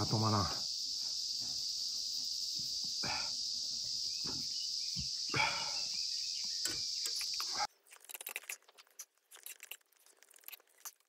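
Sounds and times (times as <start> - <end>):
insect chorus drone: 0.0 - 7.7.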